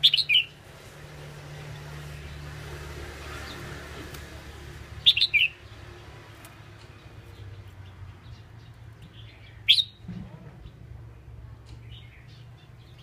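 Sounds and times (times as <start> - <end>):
bird chirping: 0.0 - 0.6, 4.9 - 10.9, 11.7 - 13.0.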